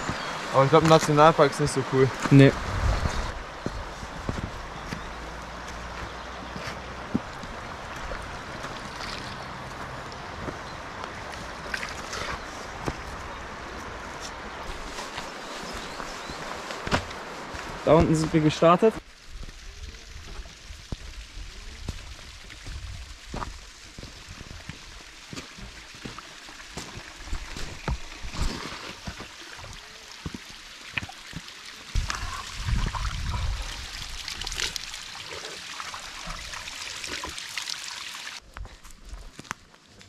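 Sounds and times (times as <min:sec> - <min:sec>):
stream splashing and gurgling: 0:00.0 - 0:40.0.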